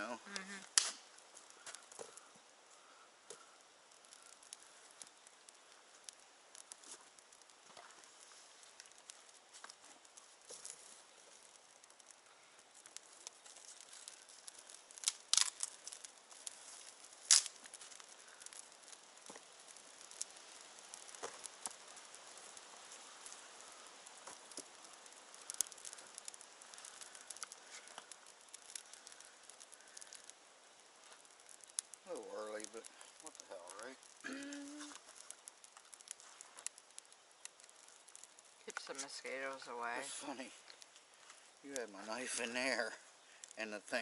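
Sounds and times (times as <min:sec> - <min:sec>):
campfire crackling: 0:00.0 - 0:44.0
fire sharp snaps: 0:00.0 - 0:44.0.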